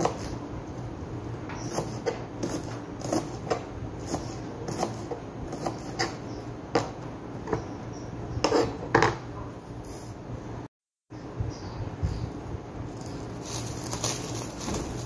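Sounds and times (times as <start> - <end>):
knife chopping on a cutting board: 1.6 - 7.6.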